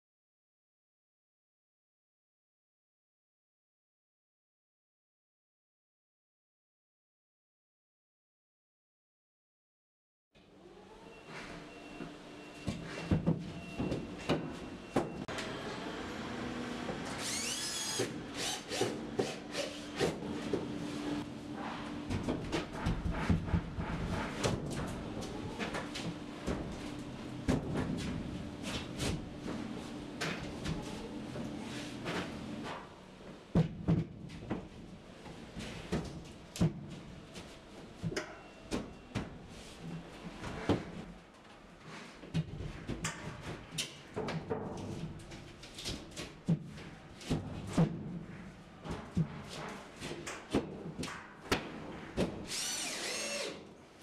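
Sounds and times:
cordless screwdriver whine: 17.2 - 18.9, 52.5 - 53.6.

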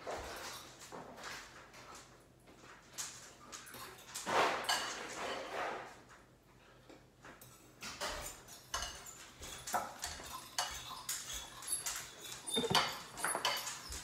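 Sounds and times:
spoon clinking against bowl: 12.2 - 13.7.

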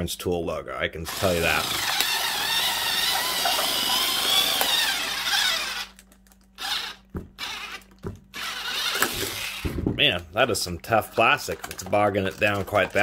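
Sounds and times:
power cutter sawing plastic: 1.1 - 9.8, 11.1 - 13.0
handling noises: 5.9 - 13.0.

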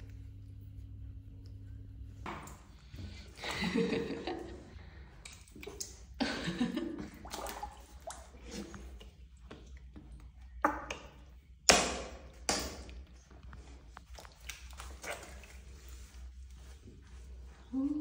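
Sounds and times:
small splashes: 2.2 - 16.3
water sloshing in a plastic tub: 2.2 - 17.8.

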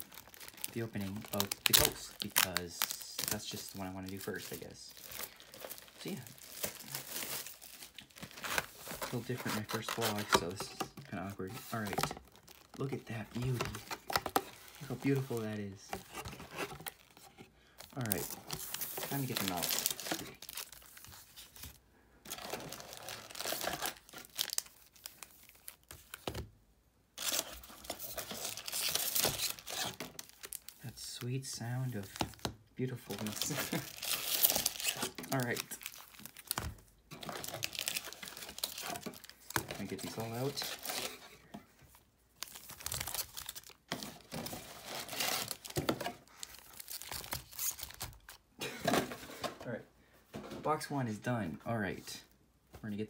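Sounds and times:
foil wrappers crinkling: 0.0 - 10.6, 17.8 - 21.7, 22.3 - 26.2, 27.2 - 30.8, 33.0 - 41.2, 42.4 - 48.4.

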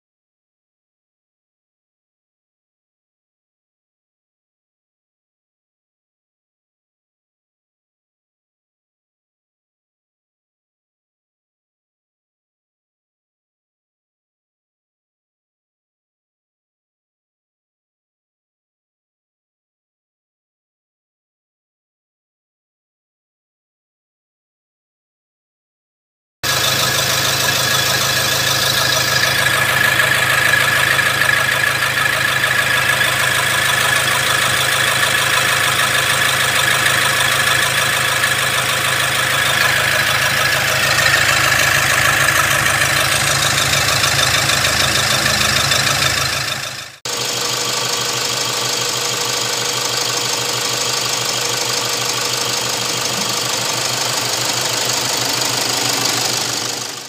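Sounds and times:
diesel engine idling: 26.4 - 57.0.

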